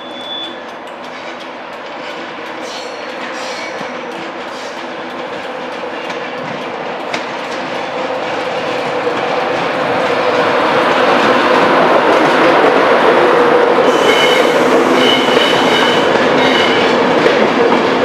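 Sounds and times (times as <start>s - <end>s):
train wheel and rail noise: 0.0s - 18.0s
track clicks: 0.2s - 12.6s.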